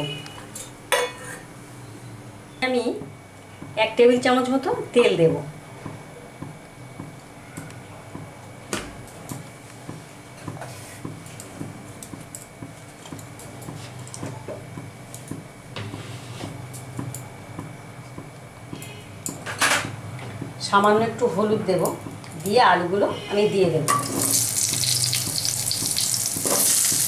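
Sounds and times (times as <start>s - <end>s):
oil ticking and crackling: 24.2s - 27.0s.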